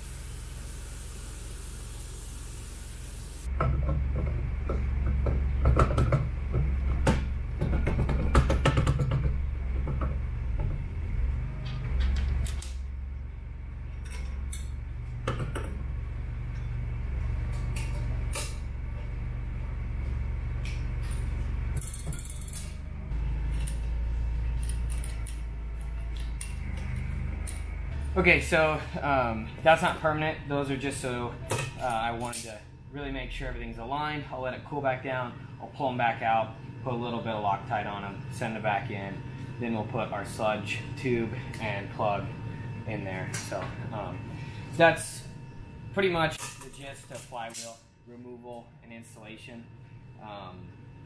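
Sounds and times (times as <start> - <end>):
gas torch flame hissing: 0.0 - 3.5.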